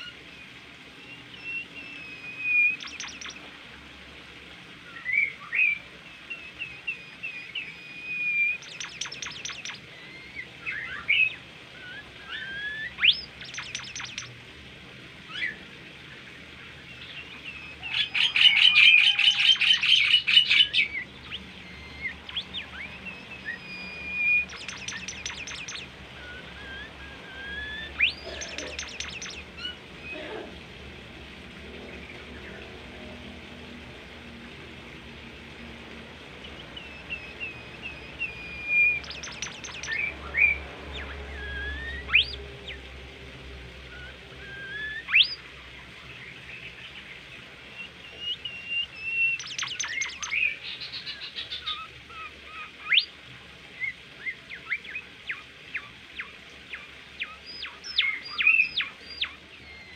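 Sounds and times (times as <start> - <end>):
songbird singing: 0.0 - 59.9
bird rattling trills: 2.6 - 3.4, 8.4 - 9.8, 12.5 - 14.3, 24.2 - 29.5, 38.3 - 40.1.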